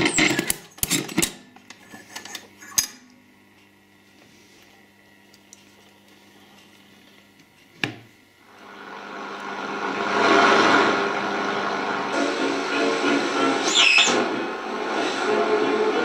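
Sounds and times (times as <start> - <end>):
low mains hum: 0.0 - 16.0
radio static hiss: 12.1 - 16.0.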